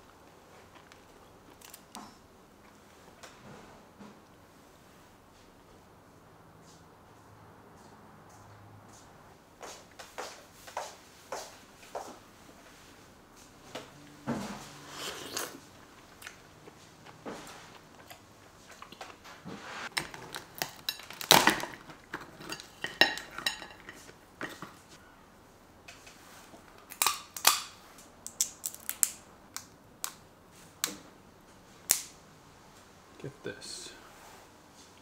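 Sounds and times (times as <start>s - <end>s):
crab shells cracking: 19.9s - 21.9s, 26.9s - 30.2s.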